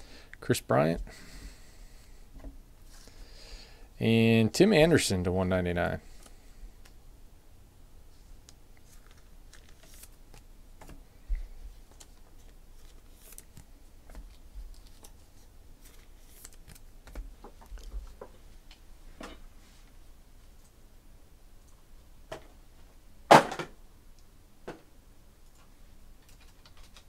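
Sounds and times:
trading cards clicking and rustling: 8.5 - 11.0, 11.8 - 15.2, 15.8 - 18.3, 26.2 - 27.0.

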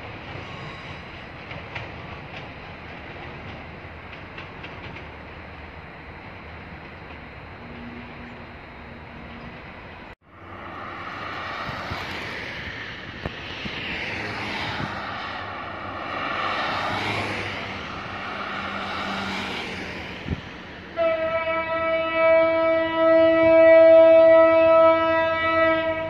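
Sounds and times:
cars passing on road: 0.0 - 26.0
train horn blast: 20.9 - 26.0.

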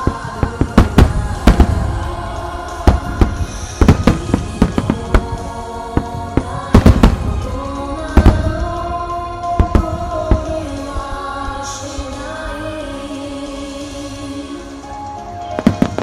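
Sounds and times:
firework booms: 0.0 - 11.2
music playing: 0.0 - 16.0.

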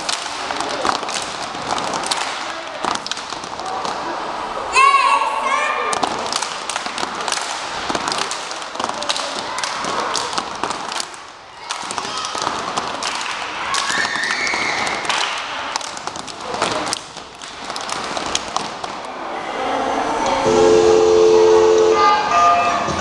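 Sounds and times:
hand claps and body slaps: 0.0 - 4.0, 5.9 - 19.0
children's voices: 4.6 - 6.0, 21.4 - 23.0.

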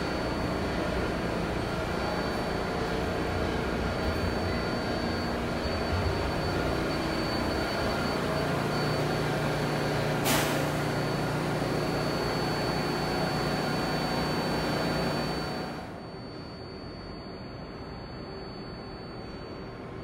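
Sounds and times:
train ventilation hum and whine: 0.0 - 20.0
short air hiss: 10.2 - 10.6.

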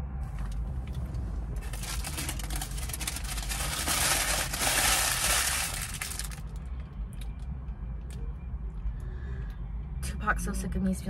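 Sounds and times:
food wrapping crinkling: 1.6 - 6.5.

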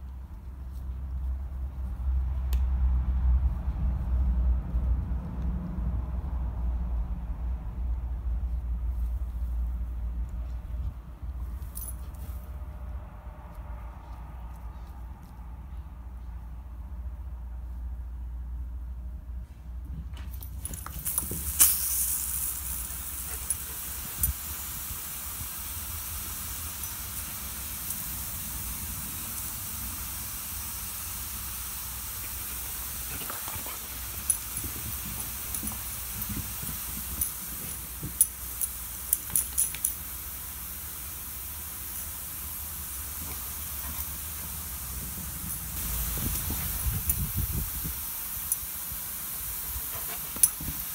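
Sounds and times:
sprinklers spraying water: 20.4 - 50.9.

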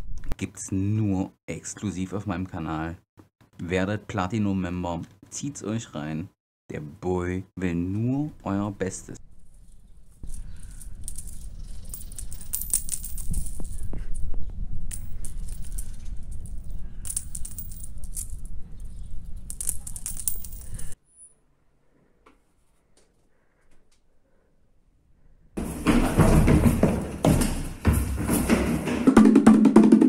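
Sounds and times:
small objects rattling in hands: 10.2 - 14.3, 14.9 - 21.0
wind rumble on microphone: 13.1 - 20.0.

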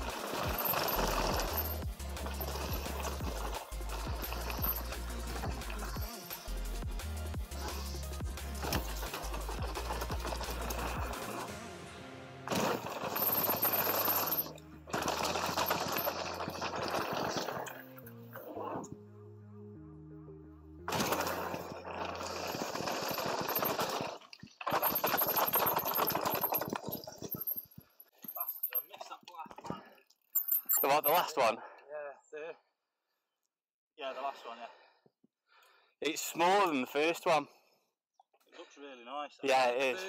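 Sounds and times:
bike tyres rattling on dirt: 0.0 - 6.0, 8.6 - 11.5, 12.5 - 17.8, 20.9 - 29.0
background music with deep bass: 0.0 - 15.5.

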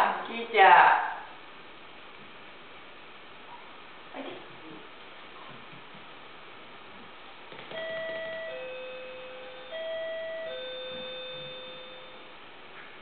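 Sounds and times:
two-note ding-dong chime: 7.8 - 12.3.

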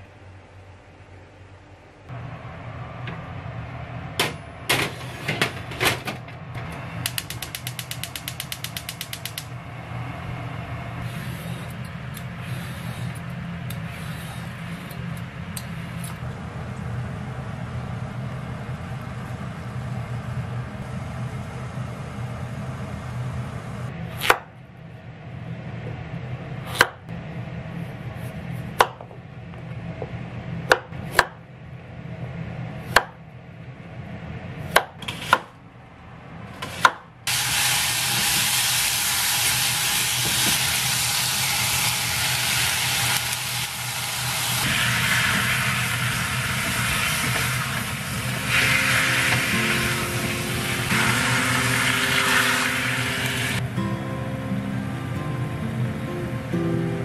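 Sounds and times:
low hum: 0.0 - 34.8
gas burner hissing: 4.0 - 16.2, 36.5 - 53.6
gas hob igniter ticking: 7.0 - 9.5.

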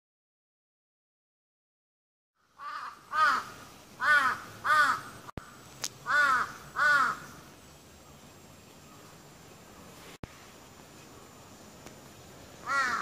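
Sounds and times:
crow cawing: 2.5 - 5.3, 6.0 - 7.4, 12.6 - 13.0.

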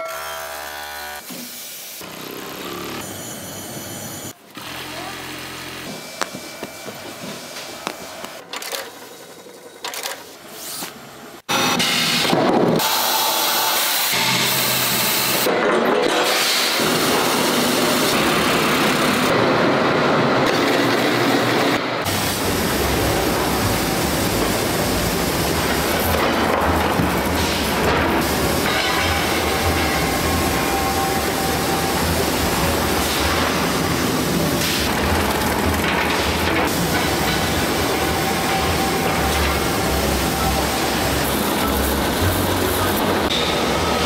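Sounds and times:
factory machinery rushing: 11.5 - 44.0.

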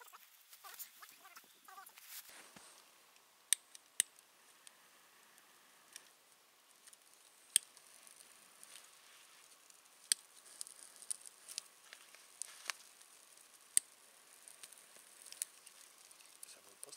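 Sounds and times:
faint hiss: 0.0 - 16.9
fire crackling: 0.0 - 16.9
twigs snapping: 3.5 - 16.9.

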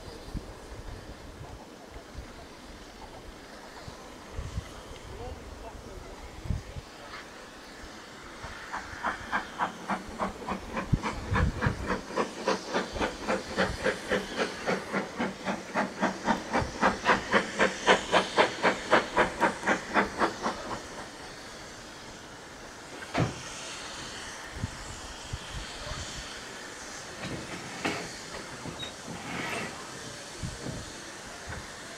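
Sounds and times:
steam hissing: 0.0 - 31.9
steam locomotive chuffing: 0.0 - 31.9.

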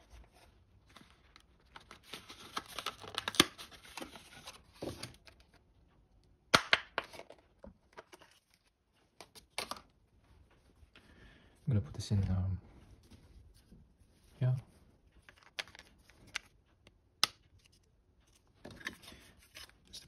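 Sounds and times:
packaging crinkling and rustling: 0.0 - 5.6.

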